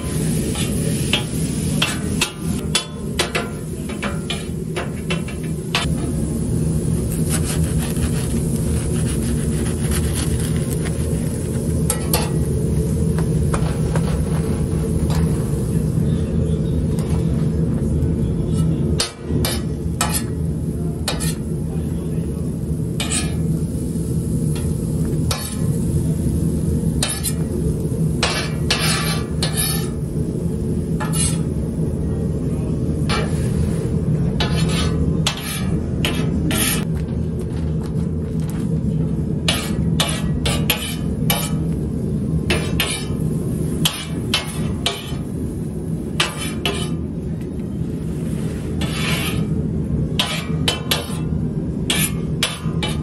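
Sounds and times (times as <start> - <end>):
food frying on griddle: 0.0 - 16.0, 18.5 - 32.4, 33.0 - 37.0, 39.3 - 53.0
metal spatula scraping griddle: 7.1 - 10.9, 19.4 - 20.4, 21.1 - 21.5, 23.0 - 23.5, 27.0 - 27.5, 28.2 - 30.0, 31.0 - 31.5, 34.4 - 36.9, 39.5 - 41.6, 42.5 - 43.2, 46.2 - 47.0, 48.3 - 49.6, 50.2 - 51.3, 51.9 - 53.0.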